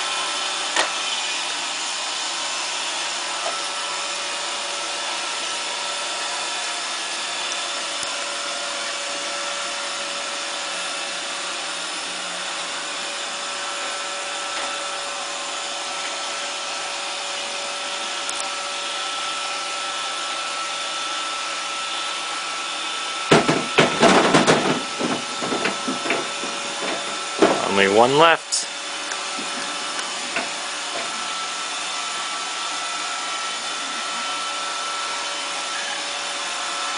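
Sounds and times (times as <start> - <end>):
loud uneven burst: 23.3 - 28.6
robot vacuum whirring: 28.7 - 36.9.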